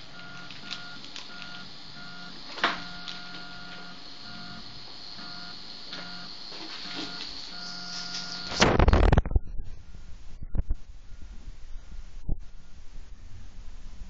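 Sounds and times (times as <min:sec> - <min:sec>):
stepper motors whining: 0:00.0 - 0:08.8.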